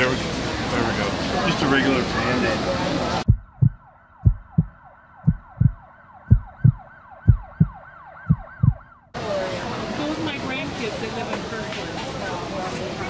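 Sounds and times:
muffled siren wailing: 3.2s - 9.2s
low heartbeat thumps: 3.3s - 9.0s.

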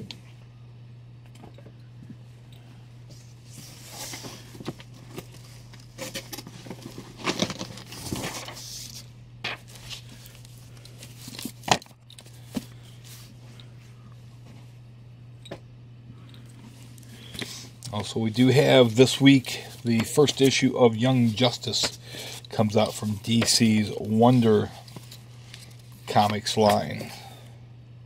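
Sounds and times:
steady low hum: 0.0s - 28.0s
paper and cardboard rustling: 3.5s - 13.3s, 17.4s - 27.2s.

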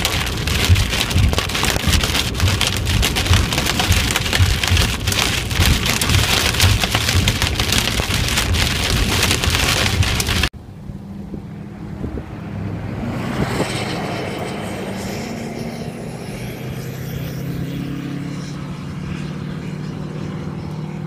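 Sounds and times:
hail and rain pelting a vehicle: 0.0s - 10.5s.

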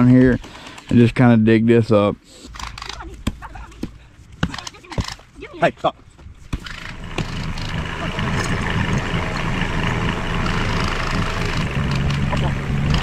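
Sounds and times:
tractor engine humming: 2.5s - 13.0s.

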